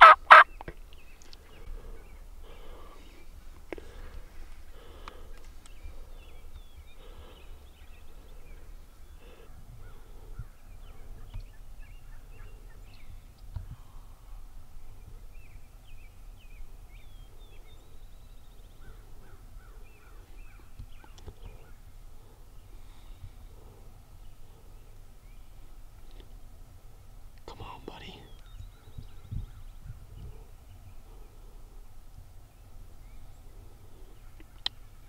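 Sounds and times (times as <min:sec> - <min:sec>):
wild turkeys calling: 0:00.0 - 0:03.2
low wind rumble: 0:00.0 - 0:35.0
songbirds chirping and whistling: 0:00.0 - 0:35.0.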